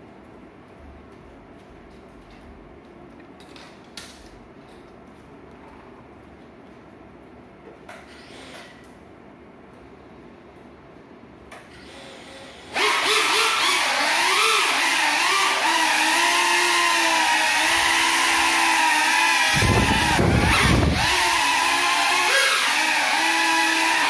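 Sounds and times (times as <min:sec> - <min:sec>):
quadcopter motors whining: 0:11.8 - 0:24.0.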